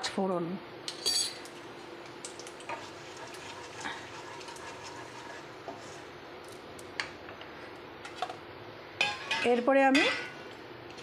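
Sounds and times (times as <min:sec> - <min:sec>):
seeds sizzling in hot oil: 0:01.5 - 0:07.1.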